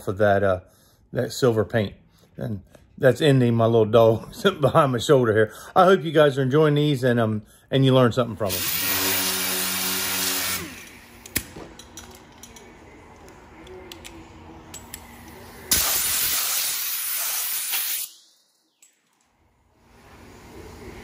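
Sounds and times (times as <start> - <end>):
air blow gun hissing: 8.5 - 10.9, 15.7 - 18.2
air sander running: 8.5 - 11.2.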